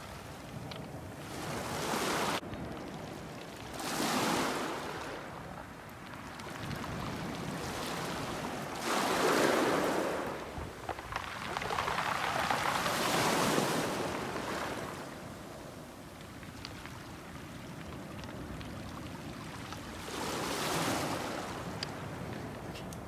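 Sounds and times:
waves washing onto pebble beach: 0.0s - 22.8s
faint clicks: 21.7s - 23.0s.

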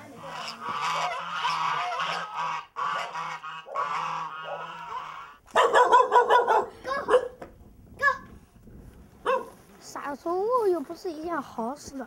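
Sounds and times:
honking animal calls: 0.1s - 6.1s.

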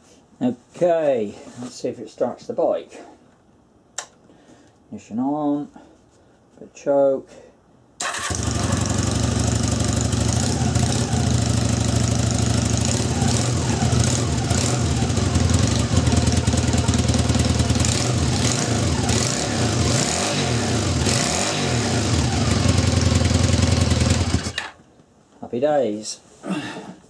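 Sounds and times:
motorcycle engine running: 8.2s - 24.6s.

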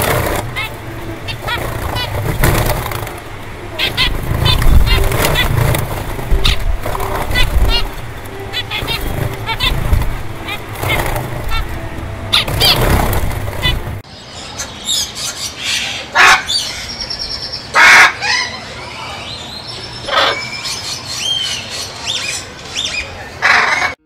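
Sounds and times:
low rumbling noise: 0.0s - 14.5s
parrot squawking: 0.0s - 19.4s, 20.0s - 24.0s.

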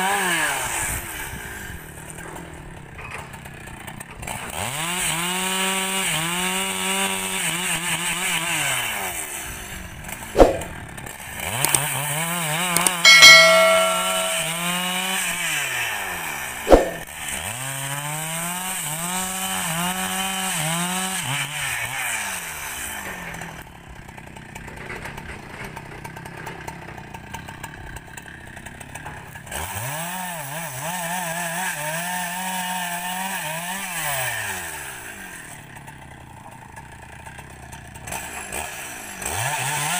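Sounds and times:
sharp knocks: 12.8s - 14.7s
chainsaw cutting logs: 37.6s - 39.9s.

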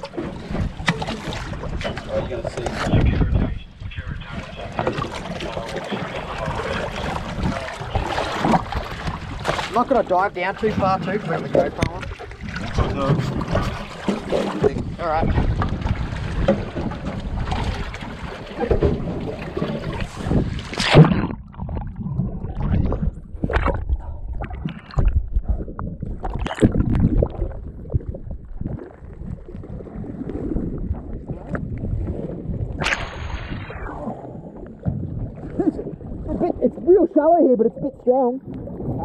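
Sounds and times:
wind on microphone: 0.0s - 9.8s, 10.6s - 39.0s
muffled underwater rushing and bubbling: 0.0s - 39.0s
water sloshing: 0.0s - 39.0s
clicks underwater: 11.4s - 36.8s
splash into water: 32.1s - 34.5s.

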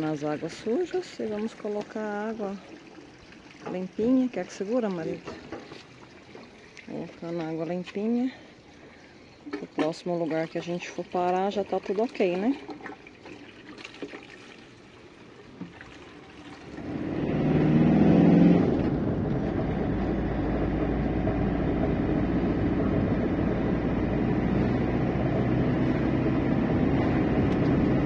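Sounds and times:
road noise: 14.6s - 28.0s
motorhome engine: 16.7s - 28.0s.

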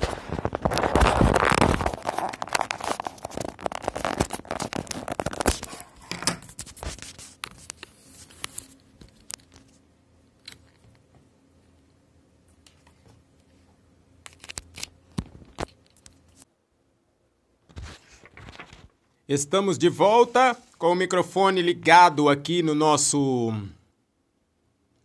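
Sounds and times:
phone and microphone handling noise: 0.0s - 7.0s.

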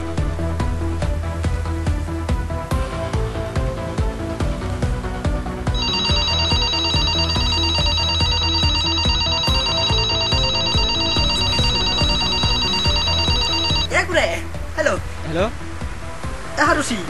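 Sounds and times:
background music with steady beat: 0.0s - 17.0s
telephone trilling ring: 5.8s - 13.9s.

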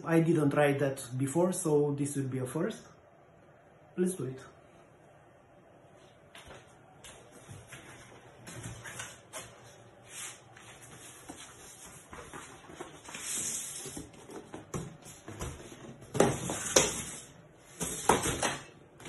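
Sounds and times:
cardboard sliding and scraping: 10.1s - 18.5s.

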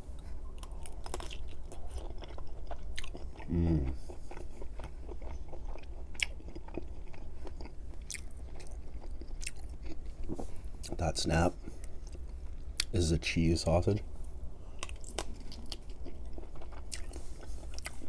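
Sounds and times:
chewing with mouth clicks: 0.1s - 11.0s, 14.8s - 18.0s.

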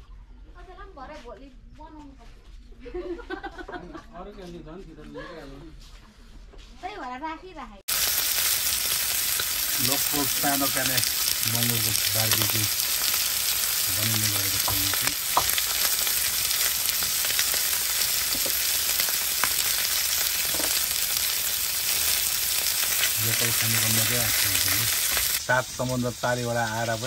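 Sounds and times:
pops and crackles: 7.9s - 25.6s
pork sizzling in hot fat: 7.9s - 27.0s.

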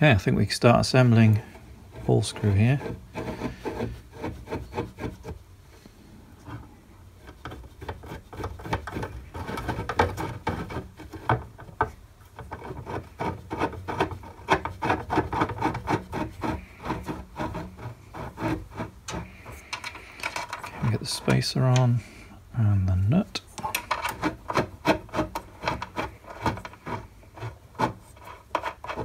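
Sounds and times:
metal parts clicking and scraping: 18.2s - 22.1s, 23.4s - 29.0s.

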